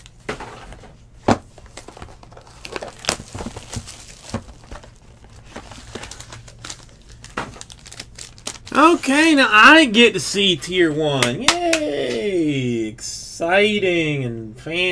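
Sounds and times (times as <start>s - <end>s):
foil wrappers crinkling: 1.6s - 9.5s.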